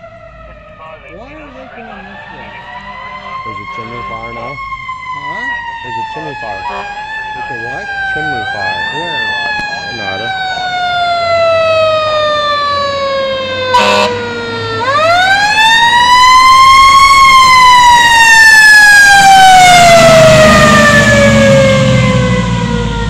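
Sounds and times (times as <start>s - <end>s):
fire engine siren wailing: 0.0s - 23.0s
short horn blast: 13.8s - 14.2s
engine and tyres on wet road: 20.0s - 23.0s.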